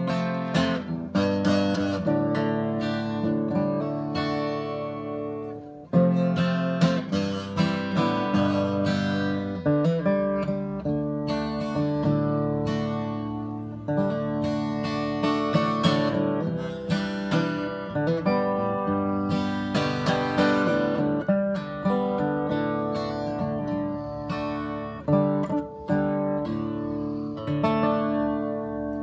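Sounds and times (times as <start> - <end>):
acoustic guitar strumming: 0.0 - 29.0.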